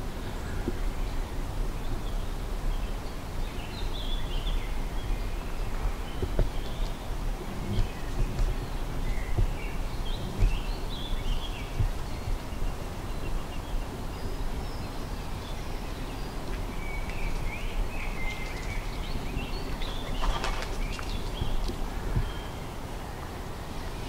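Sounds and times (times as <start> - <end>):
low rumble with thumps: 0.0 - 22.6
songbirds singing and chirping: 0.0 - 24.0.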